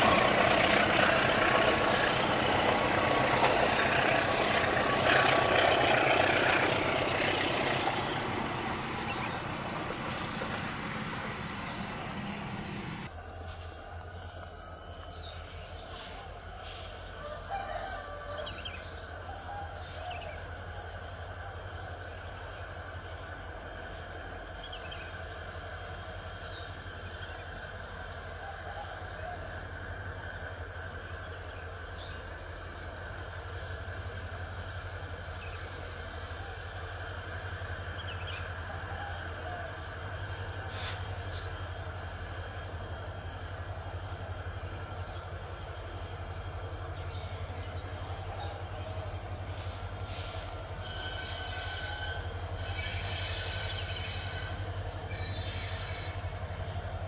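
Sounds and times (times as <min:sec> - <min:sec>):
diesel locomotive engine drone: 0:00.0 - 0:57.0
insects chirping: 0:00.0 - 0:57.0
short high squeals: 0:50.1 - 0:56.3.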